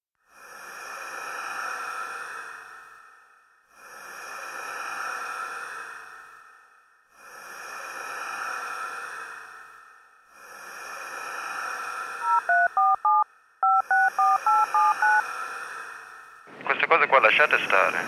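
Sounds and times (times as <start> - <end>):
faint steady high tones: 12.2 - 15.2.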